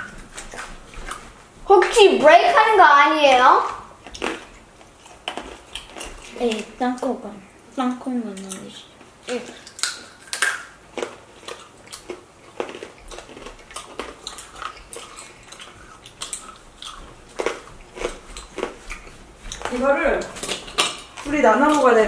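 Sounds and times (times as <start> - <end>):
candy crunching: 3.2 - 7.1, 8.2 - 22.0.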